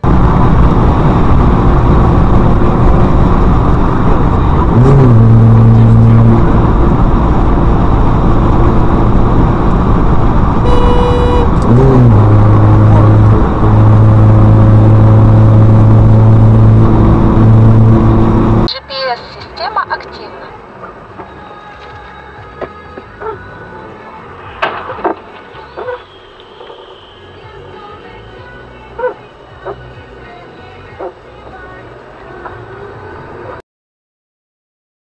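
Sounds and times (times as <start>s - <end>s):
low steady droning tone: 0.0s - 18.7s
road and wind noise in car: 0.0s - 33.6s.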